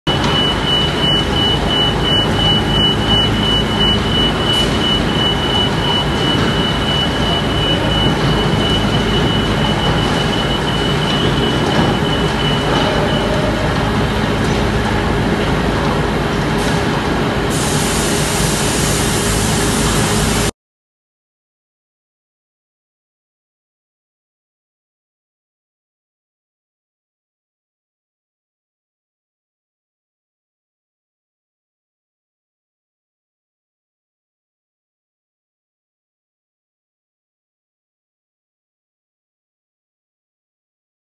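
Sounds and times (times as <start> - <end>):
industrial machinery noise: 0.1 - 20.5.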